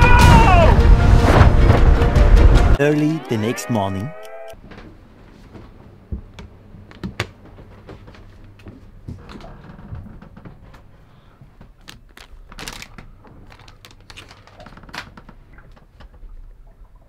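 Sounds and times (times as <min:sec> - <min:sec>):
plastic packet crinkling: 0:11.8 - 0:15.2.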